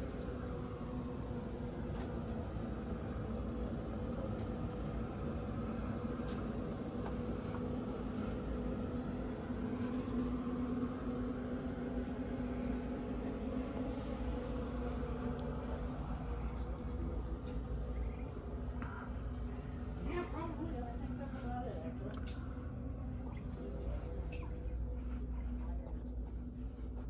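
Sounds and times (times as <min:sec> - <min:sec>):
machine hum: 0:00.0 - 0:27.0.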